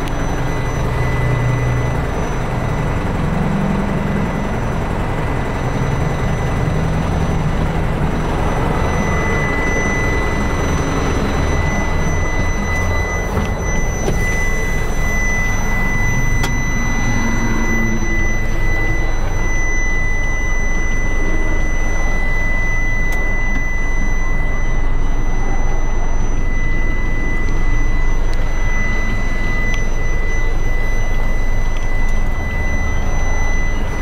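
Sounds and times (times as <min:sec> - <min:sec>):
diesel engine idling: 0:00.0 - 0:34.0
high-pitched whine: 0:00.0 - 0:34.0.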